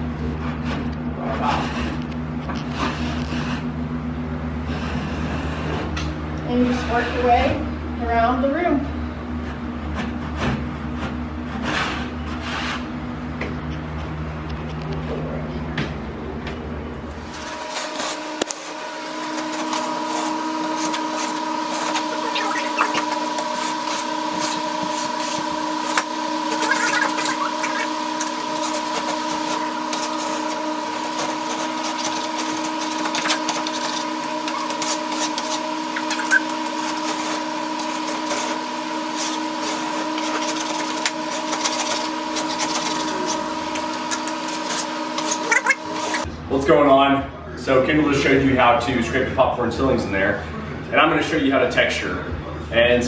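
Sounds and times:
steady mechanical hum: 0.0 - 53.0
scraper rasping ceiling texture: 0.3 - 2.0, 2.7 - 3.7, 6.5 - 7.6, 9.9 - 12.9, 17.3 - 46.3.

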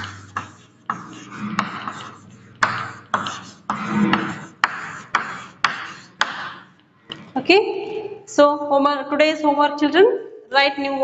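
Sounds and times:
chalk tapping and scraping on board: 0.0 - 6.8.

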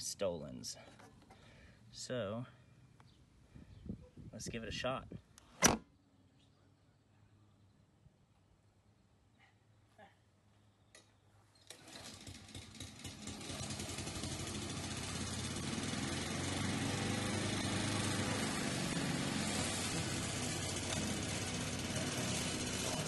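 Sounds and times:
lawn mower running: 11.7 - 23.0.

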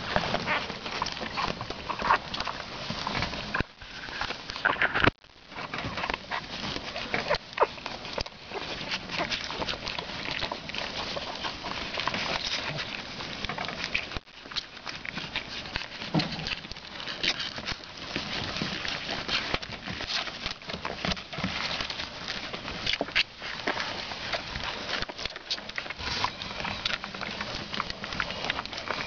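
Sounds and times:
puppies rustling on bedding: 0.0 - 29.0.

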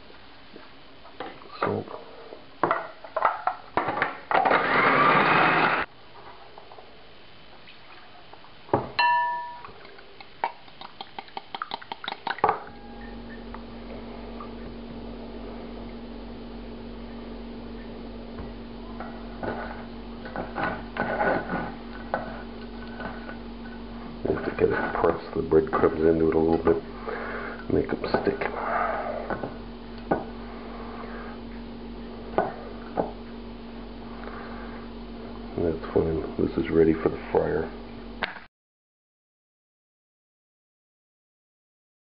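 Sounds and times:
food processor chopping: 4.3 - 5.9
ringing clink: 9.0 - 9.7
low hum: 12.5 - 38.2.

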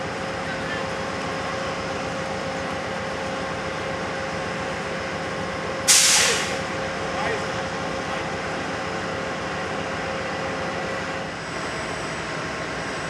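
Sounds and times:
train machinery hum: 0.0 - 13.0.

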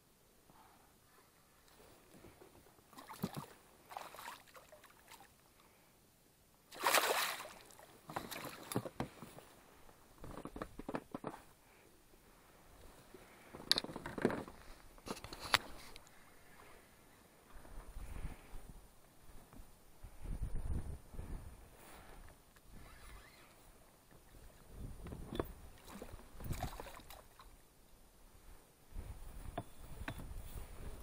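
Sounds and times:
fish splashing in water: 6.7 - 8.8.

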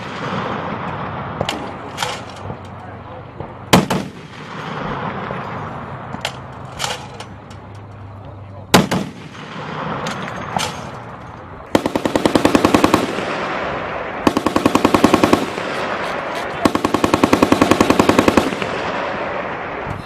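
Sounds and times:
single gunshots: 3.4 - 5.4, 8.7 - 10.9
heavy machine gun bursts: 11.7 - 13.5, 14.2 - 19.1.

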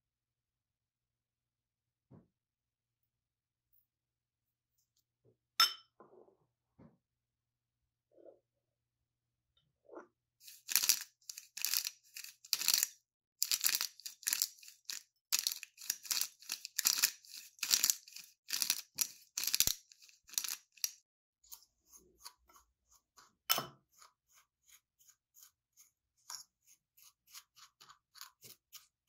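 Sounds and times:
pepper grinder crunching: 10.4 - 21.0.

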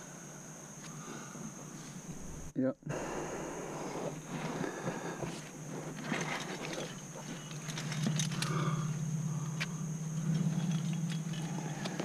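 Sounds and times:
steady low hum: 0.0 - 12.0
climbing gear clinking: 4.3 - 12.0.

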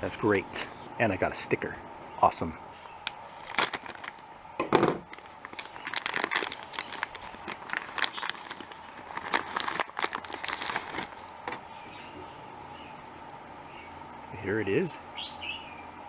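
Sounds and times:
plastic bag crinkling: 3.3 - 4.3, 5.0 - 11.6.

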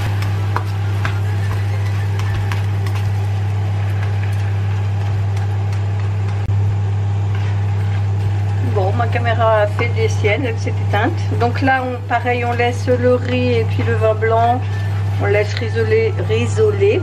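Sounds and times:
loud low hum: 0.0 - 17.0.

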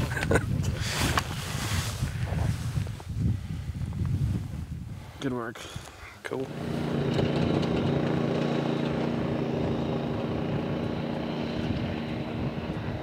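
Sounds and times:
atv engine running: 6.5 - 13.0.

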